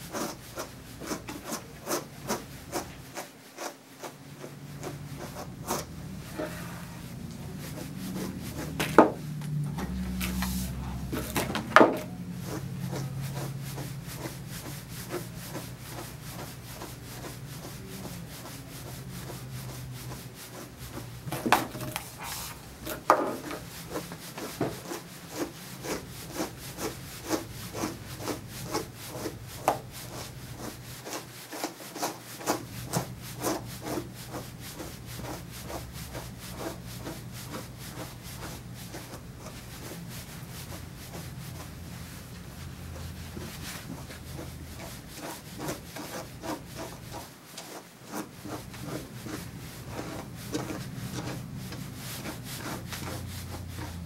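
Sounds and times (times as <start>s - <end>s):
brush rasping through dog fur: 0.0s - 54.0s.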